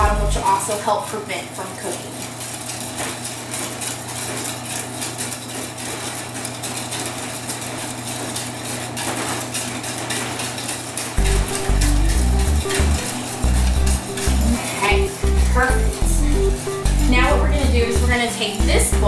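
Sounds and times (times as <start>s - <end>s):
whisk clinking against metal bowl: 1.8s - 19.0s
background music: 11.2s - 19.0s.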